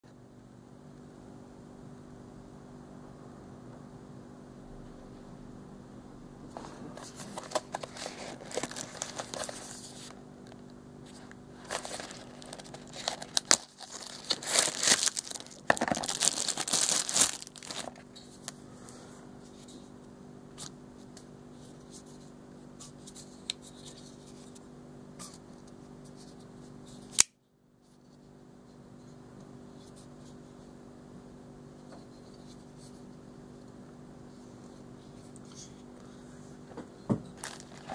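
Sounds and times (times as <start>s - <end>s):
plastic wrapping crinkling and tearing: 7.0s - 18.1s, 37.3s - 37.9s.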